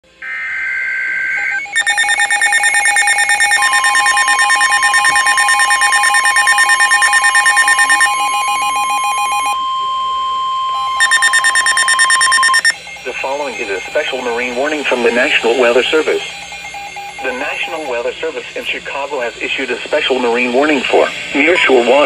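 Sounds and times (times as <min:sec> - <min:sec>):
steady alarm tone: 0:00.1 - 0:21.6
rapid pulsing alarm beeps: 0:01.0 - 0:20.8
digital alert data burst: 0:01.6 - 0:09.6, 0:10.8 - 0:18.2.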